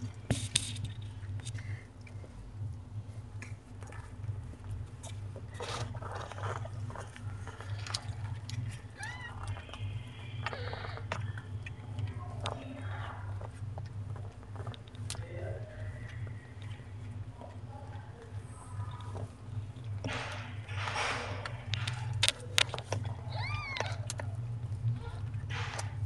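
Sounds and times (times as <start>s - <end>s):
cat licking kitten: 0.0s - 26.0s
steady low hum: 0.0s - 26.0s
kitten crying: 9.0s - 9.4s, 23.2s - 24.1s
kitten squeaking: 9.0s - 9.6s, 23.1s - 24.2s.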